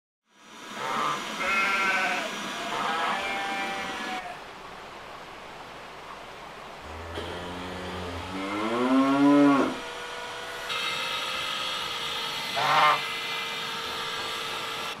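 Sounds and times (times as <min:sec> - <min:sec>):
faint steady hum: 0:00.3 - 0:15.0
rising animal call: 0:06.9 - 0:09.9, 0:12.6 - 0:13.0
goose honk: 0:12.5 - 0:13.1.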